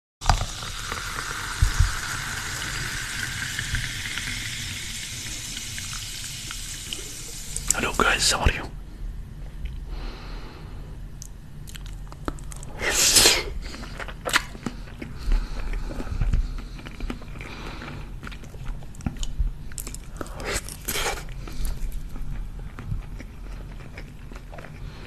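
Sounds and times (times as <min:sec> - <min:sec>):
person chewing food: 0:11.2 - 0:12.8, 0:13.5 - 0:25.0.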